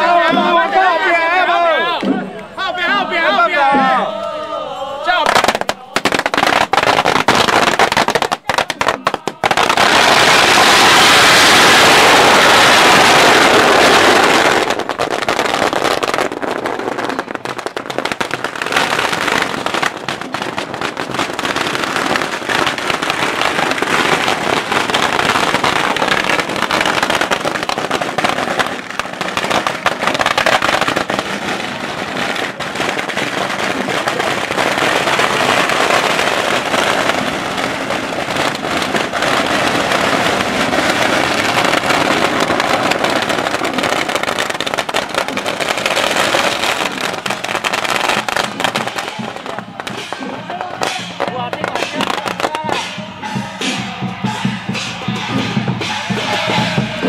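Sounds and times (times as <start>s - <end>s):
firecrackers crackling: 5.0s - 57.0s.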